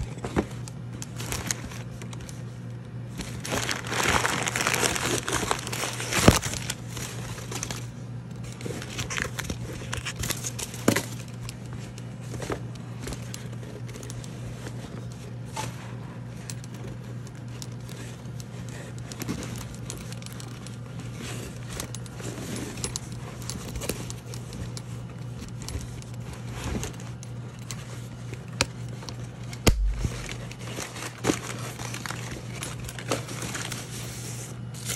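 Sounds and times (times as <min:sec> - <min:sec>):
low steady hum: 0:00.0 - 0:34.9
tissue paper rustling: 0:03.1 - 0:07.9, 0:29.7 - 0:34.9
sharp thump: 0:29.7 - 0:30.3.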